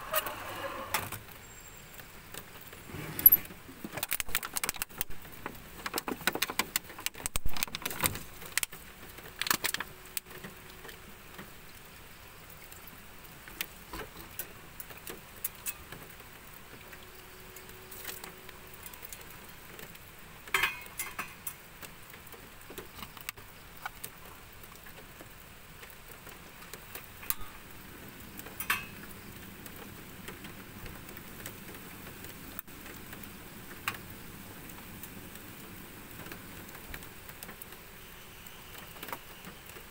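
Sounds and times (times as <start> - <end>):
metal cookware clinking: 20.5 - 21.6, 28.6 - 29.0.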